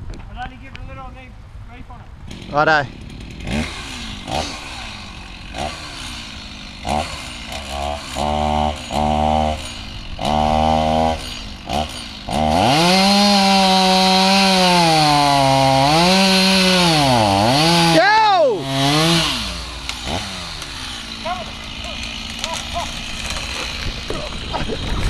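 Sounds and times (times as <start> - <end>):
chainsaw cutting tree trunk: 2.2 - 25.0
chainsaw revving: 2.2 - 25.0.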